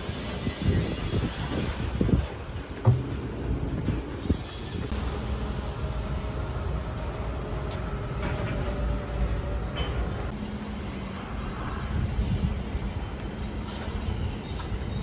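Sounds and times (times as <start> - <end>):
train rumbling: 0.0 - 15.0
wheels squealing on rails: 0.0 - 15.0.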